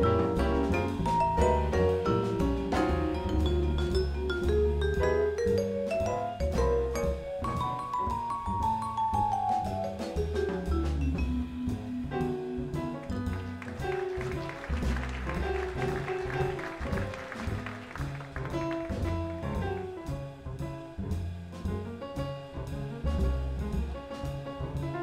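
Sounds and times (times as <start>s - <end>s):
vibraphone: 0.0s - 12.3s
double bass: 0.0s - 25.0s
drum kit: 0.0s - 25.0s
piano: 0.0s - 25.0s.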